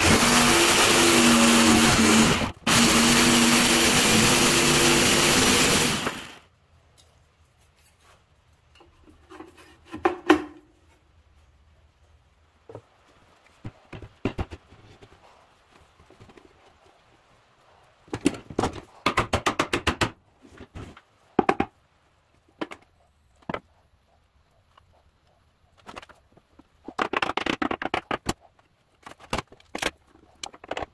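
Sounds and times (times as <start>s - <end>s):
wooden boards and tools knocking: 8.8s - 10.8s, 12.6s - 15.2s, 18.1s - 21.8s, 22.6s - 23.7s, 25.8s - 30.9s.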